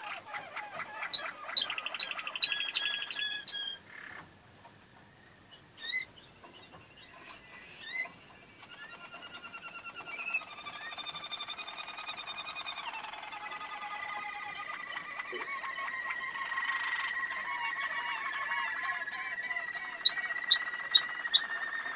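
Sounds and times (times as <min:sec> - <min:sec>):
canary chirps: 0:00.0 - 0:04.3, 0:05.5 - 0:21.9
canaries singing trills: 0:00.0 - 0:21.9.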